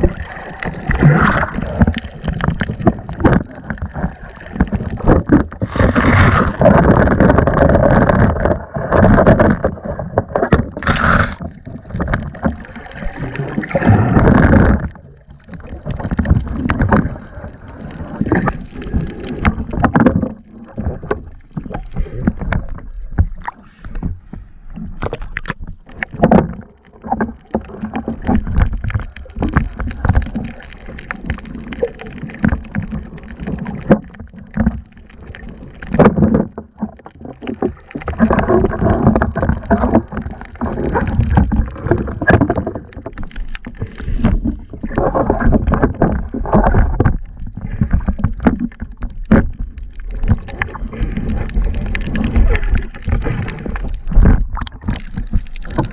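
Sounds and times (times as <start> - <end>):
water rushing underwater: 0.0 - 55.9.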